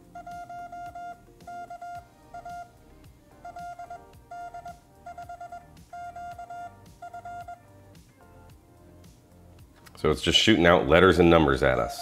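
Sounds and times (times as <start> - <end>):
morse code beeps: 0.0 - 7.7.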